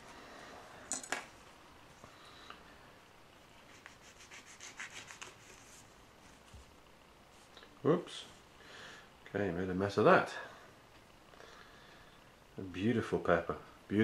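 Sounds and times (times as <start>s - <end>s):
knife sawing through pepper: 3.7s - 5.5s.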